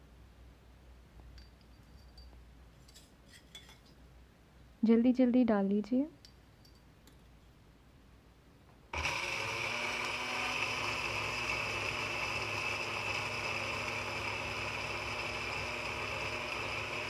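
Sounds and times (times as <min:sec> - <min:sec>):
mixer grinder motor whining: 0:08.9 - 0:17.0.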